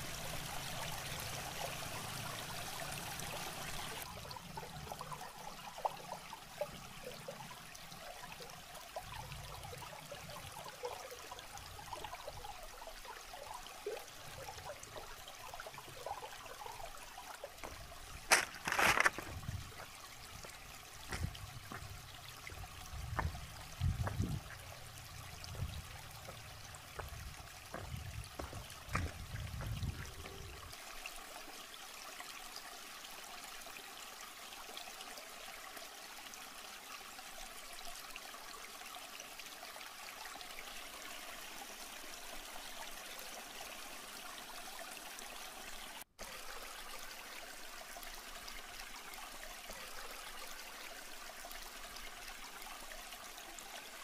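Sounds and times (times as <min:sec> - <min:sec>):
stream trickling over rocks: 0:00.0 - 0:54.0
footsteps on rocks: 0:17.6 - 0:24.4, 0:27.0 - 0:30.0.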